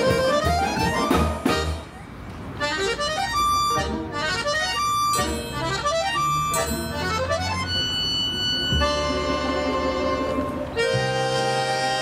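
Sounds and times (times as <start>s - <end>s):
accordions playing: 0.0s - 12.0s.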